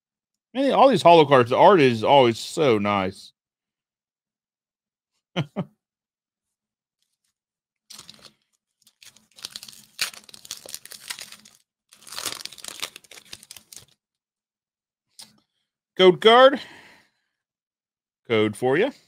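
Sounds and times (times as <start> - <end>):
foil wrapper tearing and crinkling: 7.9 - 14.0.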